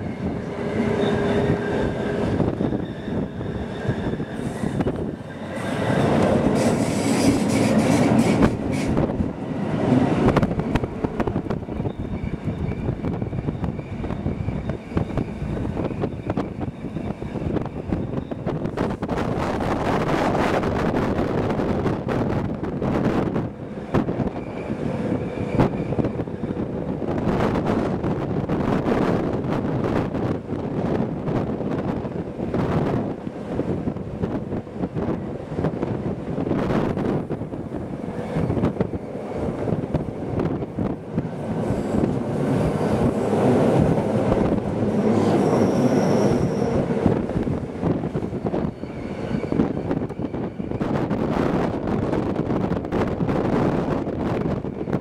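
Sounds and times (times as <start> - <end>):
train running on rails: 0.0 - 55.0
wind buffeting microphone: 0.0 - 55.0
high wheel squeal: 0.6 - 9.1, 11.7 - 18.7, 45.2 - 47.2, 48.5 - 50.8.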